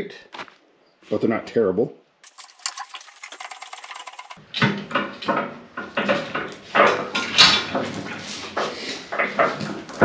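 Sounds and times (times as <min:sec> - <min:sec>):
metal clanks and knocks: 0:04.6 - 0:08.2.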